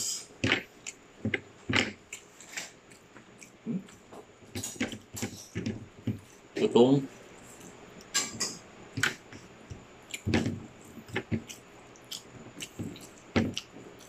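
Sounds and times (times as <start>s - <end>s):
crunchy chewing: 0.4s - 6.5s, 9.0s - 14.0s.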